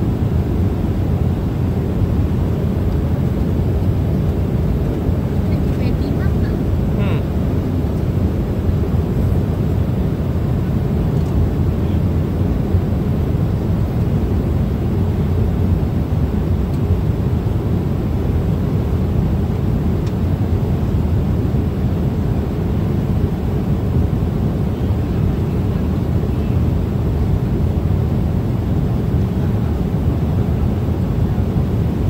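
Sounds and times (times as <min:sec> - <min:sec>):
airliner cabin engine rumble: 0:00.0 - 0:32.0.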